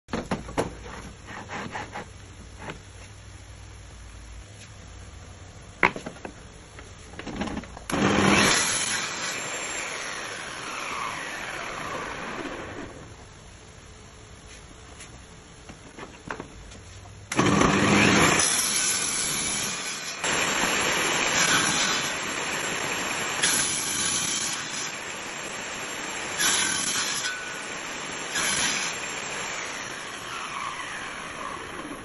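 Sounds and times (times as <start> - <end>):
saw cutting wood: 0.8 - 2.1, 7.9 - 13.0, 17.3 - 32.0
table saw running: 7.9 - 13.0, 17.3 - 32.0.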